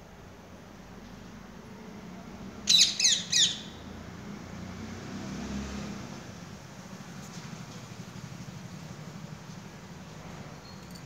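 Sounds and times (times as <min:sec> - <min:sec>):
parakeet screeching: 0:02.7 - 0:03.7.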